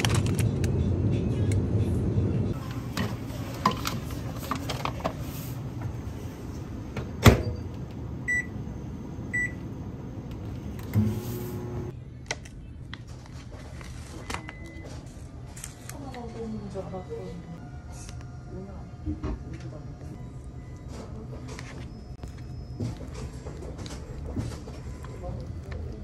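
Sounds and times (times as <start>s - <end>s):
microwave humming: 6.1s - 11.9s.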